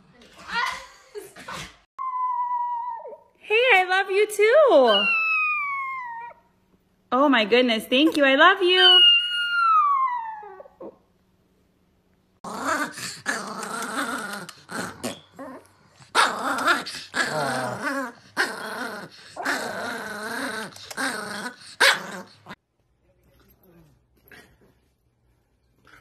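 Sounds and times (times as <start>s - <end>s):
dogs growling and snarling: 12.4s - 22.6s.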